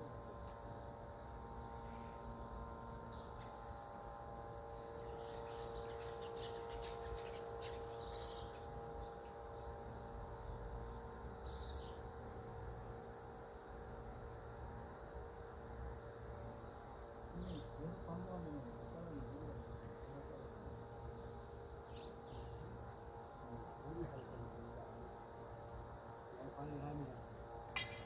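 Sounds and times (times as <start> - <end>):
faint low hum: 0.0 - 28.0
insects trilling: 0.0 - 28.0
bird chirps: 5.0 - 8.7, 11.4 - 12.0, 27.8 - 28.0.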